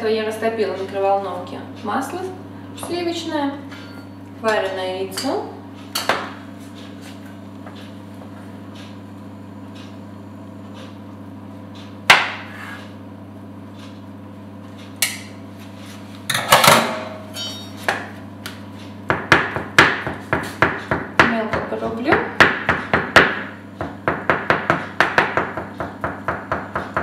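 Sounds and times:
steady low hum: 0:00.0 - 0:27.0
egg slicer knocking on board: 0:12.1 - 0:12.5, 0:19.0 - 0:27.0
knife chopping on board: 0:12.1 - 0:12.8, 0:19.1 - 0:27.0.

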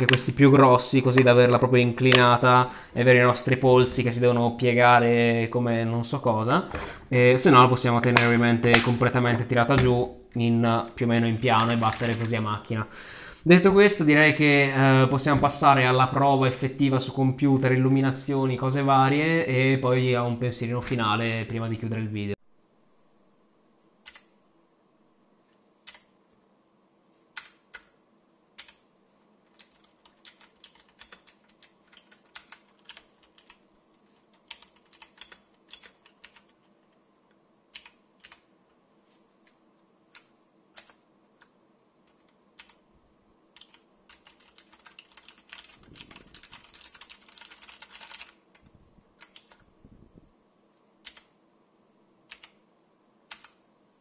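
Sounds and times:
clicky mechanical keyboard keys: 0:24.0 - 0:24.3, 0:25.9 - 0:26.1, 0:29.5 - 0:33.6, 0:34.4 - 0:36.6, 0:37.7 - 0:38.4, 0:40.1 - 0:41.5, 0:42.1 - 0:42.8, 0:43.6 - 0:48.6, 0:49.2 - 0:49.7, 0:51.0 - 0:51.3, 0:52.3 - 0:52.6, 0:53.3 - 0:53.6.

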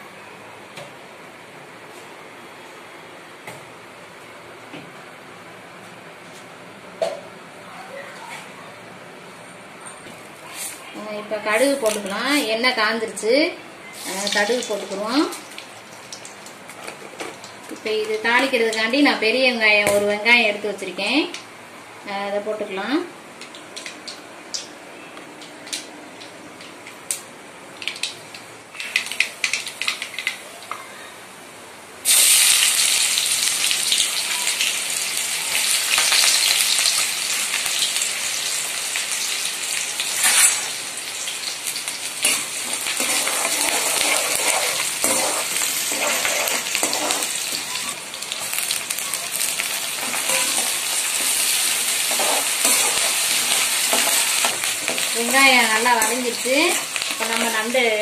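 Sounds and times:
onion sizzling in hot oil: 0:14.0 - 0:19.3, 0:32.0 - 0:58.0.

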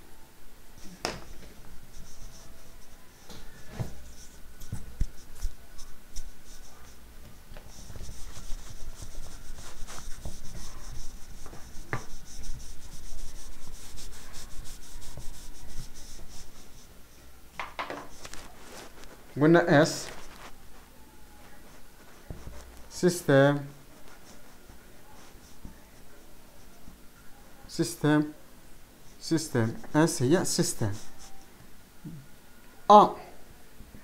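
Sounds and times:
eraser rubbing whiteboard: 0:01.2 - 0:07.0, 0:07.6 - 0:16.9, 0:21.7 - 0:23.3, 0:23.9 - 0:26.9, 0:29.7 - 0:31.5.

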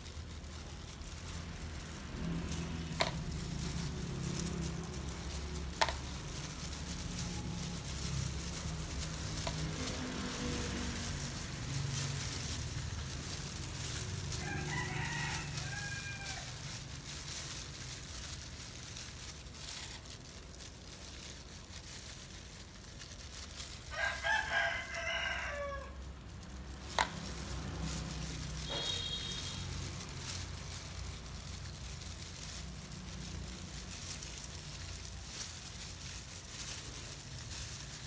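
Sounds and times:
rooster crowing: 0:14.3 - 0:16.7, 0:23.9 - 0:26.1, 0:28.6 - 0:29.6.

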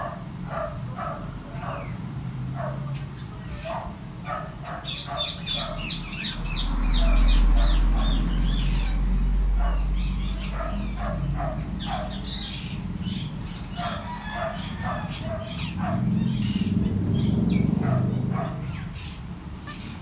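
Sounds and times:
parrot chicks calling: 0:00.0 - 0:20.0
low steady rumble: 0:06.0 - 0:19.6.

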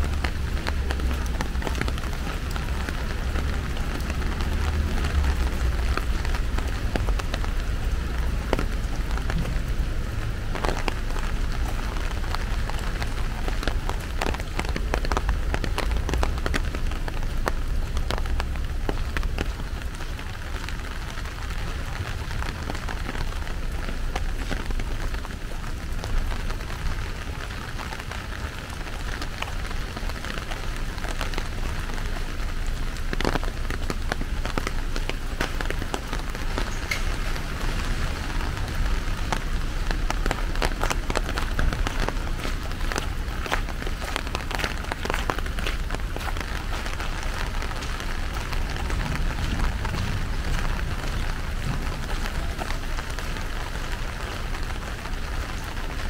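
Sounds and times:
heavy rain falling: 0:00.0 - 0:56.0
raindrops ticking: 0:00.0 - 0:56.0
low rumble: 0:46.1 - 0:54.8.

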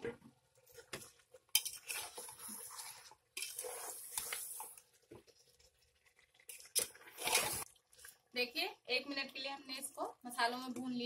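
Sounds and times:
spoon stirring thick masala: 0:00.2 - 0:08.3.

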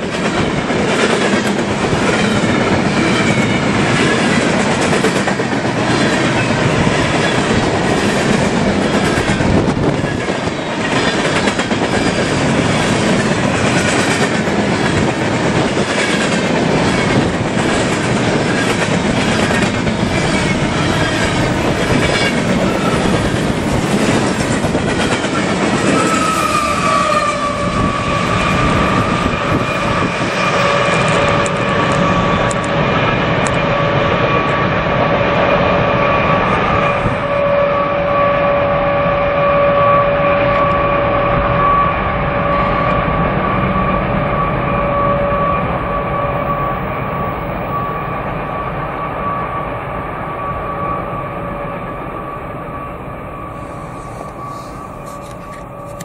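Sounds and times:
train wheels clicking over rails: 0:00.0 - 0:34.3
high-pitched wheel squeal: 0:20.1 - 0:34.8, 0:35.4 - 0:56.0.

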